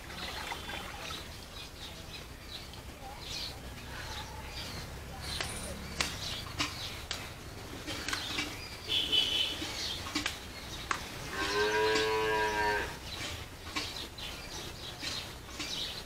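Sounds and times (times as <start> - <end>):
cow mooing: 11.3 - 13.0.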